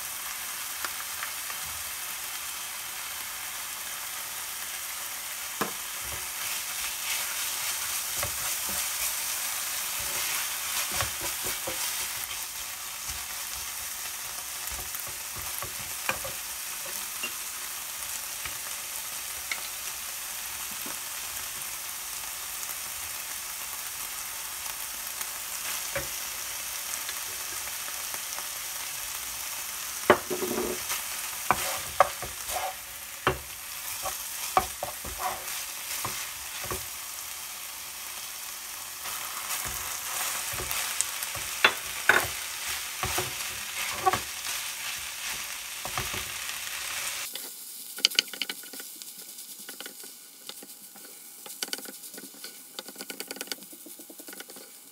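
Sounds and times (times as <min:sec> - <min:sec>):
food sizzling in a frying pan: 0:00.0 - 0:54.9
wooden spatula scraping a pan: 0:05.7 - 0:13.8, 0:30.1 - 0:36.9, 0:39.0 - 0:47.5, 0:48.1 - 0:54.8.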